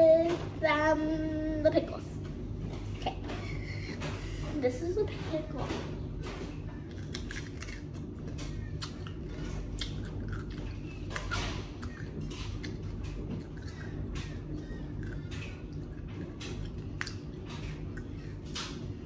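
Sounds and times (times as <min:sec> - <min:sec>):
pickle crunching: 0:06.8 - 0:18.8.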